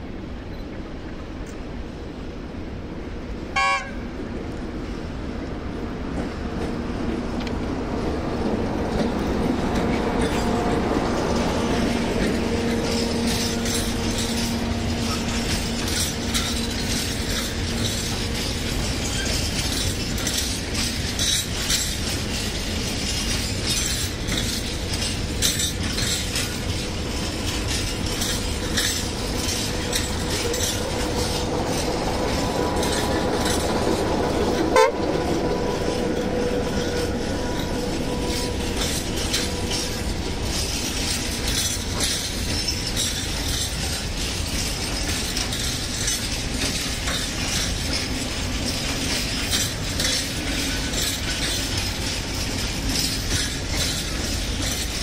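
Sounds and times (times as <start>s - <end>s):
diesel locomotive engine drone: 0.0s - 55.0s
train horn toot: 3.6s - 4.2s, 34.7s - 37.2s
wheels clicking over rail joints: 5.6s - 55.0s.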